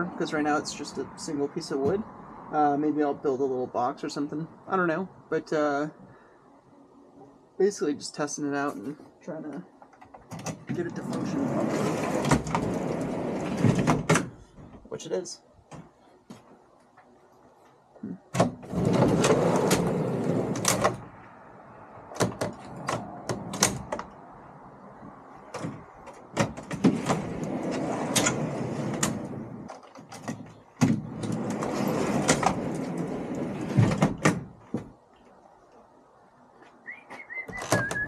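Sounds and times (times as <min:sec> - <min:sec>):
wooden platform rolling: 0:09.8 - 0:14.8, 0:18.4 - 0:21.0, 0:25.5 - 0:35.0, 0:37.2 - 0:38.0.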